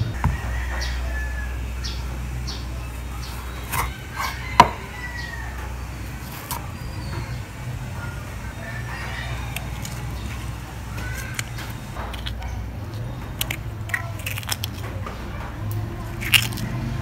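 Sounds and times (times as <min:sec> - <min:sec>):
steady low hum: 0:00.0 - 0:17.0
knife knocking on cutting board: 0:04.6 - 0:04.8.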